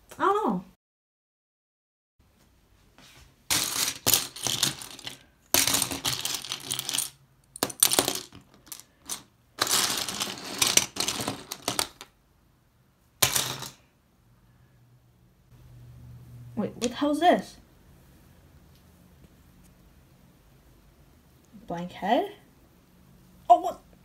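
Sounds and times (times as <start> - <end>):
plastic bricks clattering: 3.5 - 12.2.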